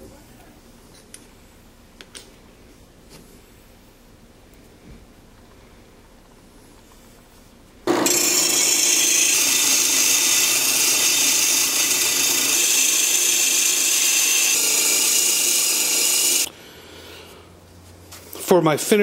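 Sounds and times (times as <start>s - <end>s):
drill press motor hum: 7.9s - 16.5s
saw blade cutting spinning wood: 7.9s - 16.5s.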